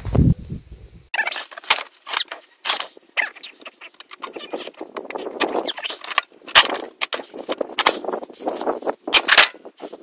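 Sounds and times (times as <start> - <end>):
metal tools clinking and rattling: 5.6 - 10.0.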